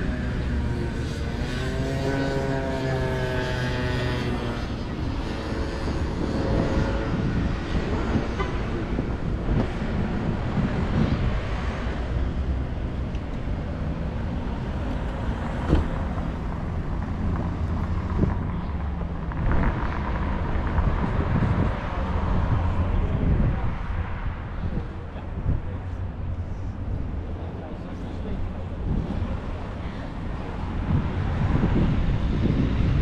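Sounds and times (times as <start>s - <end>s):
urban background rumble: 0.0s - 33.0s.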